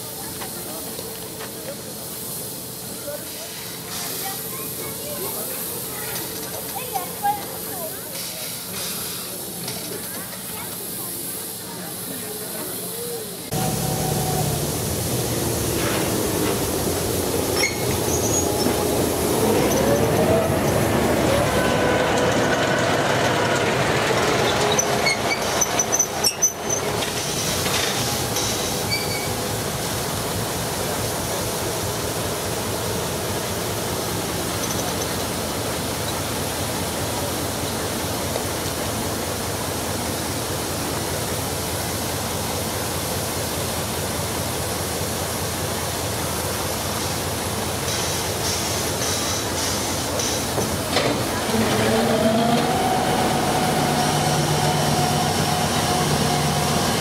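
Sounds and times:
train wheels squealing: 17.6 - 18.8, 24.4 - 26.9, 28.9 - 29.4.

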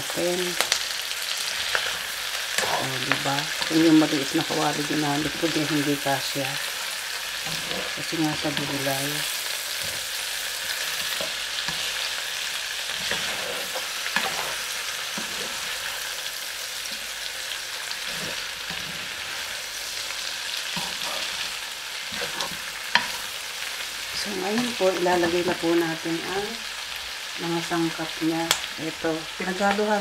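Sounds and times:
vegetables sizzling in oil: 0.0 - 30.0
spatula scraping and knocking pan: 12.9 - 15.8.

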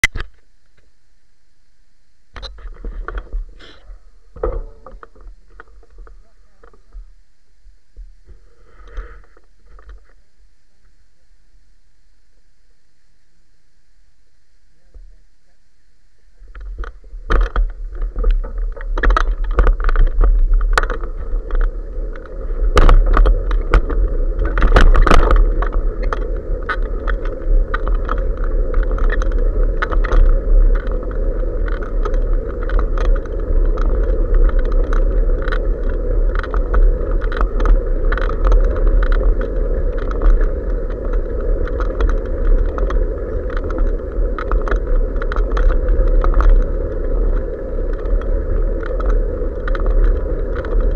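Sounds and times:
bike rattling over road: 16.4 - 50.9
wind buffeting microphone: 16.4 - 50.9.

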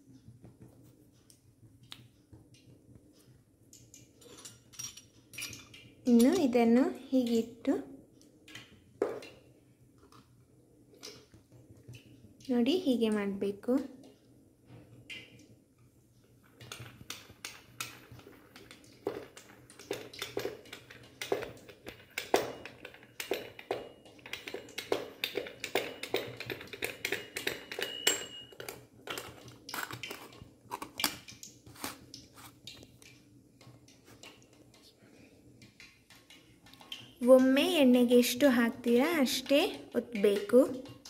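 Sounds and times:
metallic clicks and scrapes: 16.5 - 37.2.

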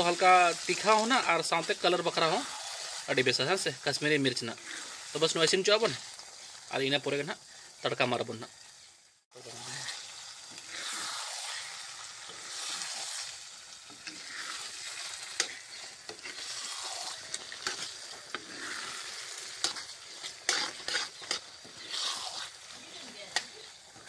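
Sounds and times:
food sizzling in a pan: 0.0 - 24.0
spatula scraping and knocking pan: 13.9 - 22.6.

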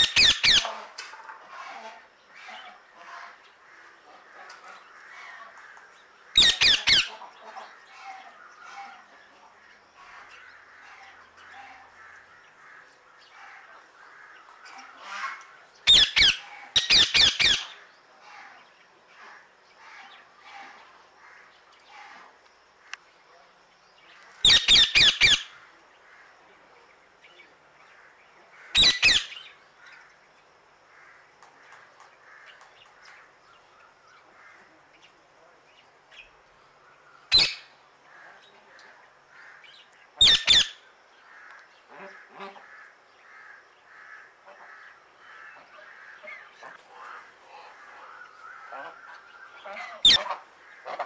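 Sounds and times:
parrot screeching: 40.2 - 40.8.

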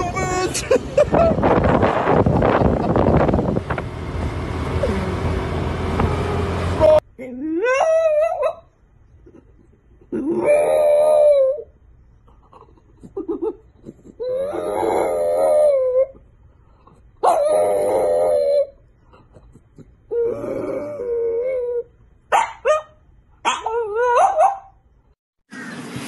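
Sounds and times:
dog howling: 10.3 - 11.7, 14.2 - 16.2, 17.2 - 18.8.

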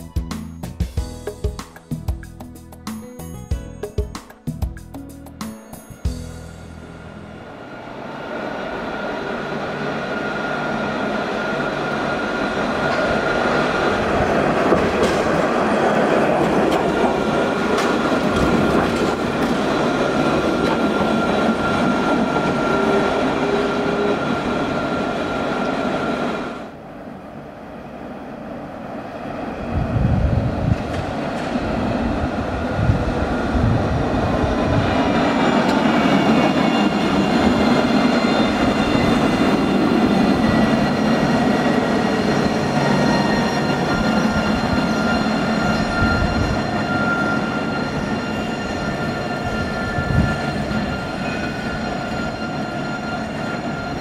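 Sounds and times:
tram rolling rumble: 0.0 - 54.0
tram motor whine: 5.4 - 27.2, 29.7 - 54.0.

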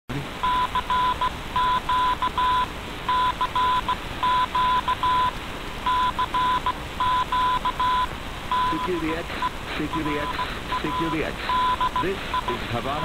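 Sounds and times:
morse code tone: 0.4 - 5.3, 5.9 - 12.8
radio hiss: 2.6 - 13.0.

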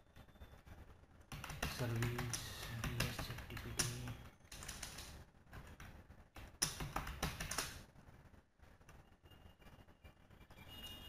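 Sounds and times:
low steady hum: 0.0 - 11.0
typing on a keyboard: 1.3 - 7.8.

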